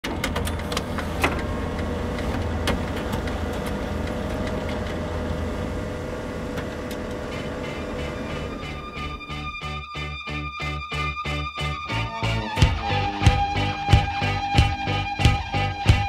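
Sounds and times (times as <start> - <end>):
noisy hiss: 0.6 - 9.8
low rumble: 1.1 - 9.8.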